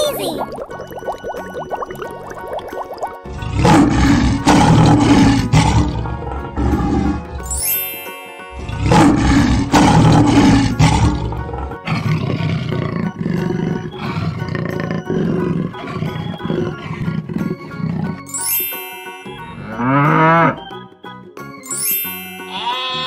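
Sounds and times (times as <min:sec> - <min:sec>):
background music: 0:00.0 - 0:23.0
big cat roars: 0:03.3 - 0:07.4, 0:08.6 - 0:18.3.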